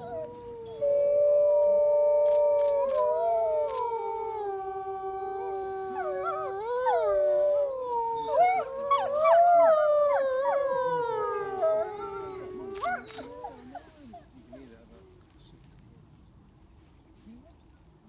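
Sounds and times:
wolves howling: 0:00.0 - 0:14.7.

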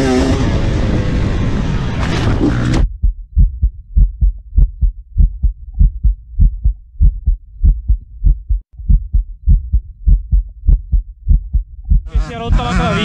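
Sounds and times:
heartbeat thumps: 0:02.8 - 0:12.9.

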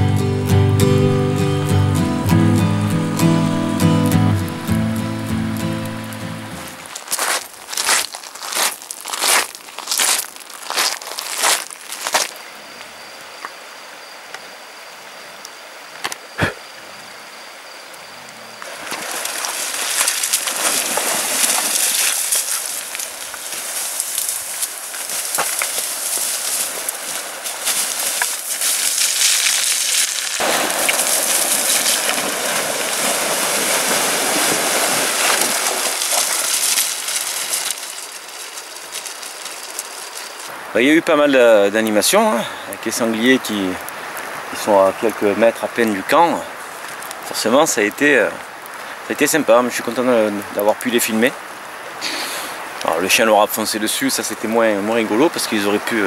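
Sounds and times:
boar rooting through dry scrub: 0:06.7 - 0:12.4, 0:18.6 - 0:40.6
faint hiss: 0:12.3 - 0:56.0.

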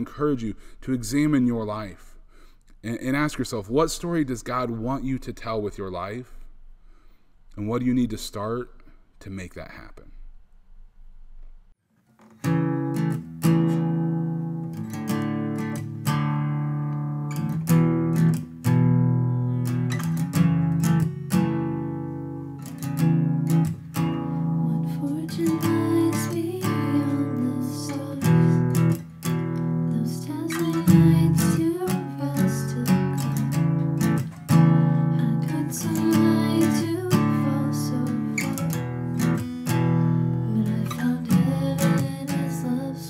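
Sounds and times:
acoustic guitar strumming chords: 0:12.2 - 0:43.0
voices singing a worship song: 0:24.6 - 0:29.0, 0:29.9 - 0:33.6, 0:34.8 - 0:38.8, 0:40.1 - 0:43.0.

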